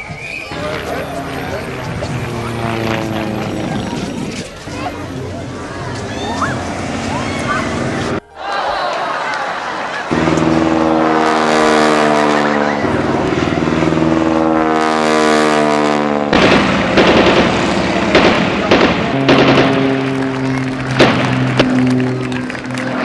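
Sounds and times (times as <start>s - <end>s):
propeller plane engine droning: 0.0s - 8.2s, 9.6s - 23.0s
sharp cracks: 16.3s - 23.0s.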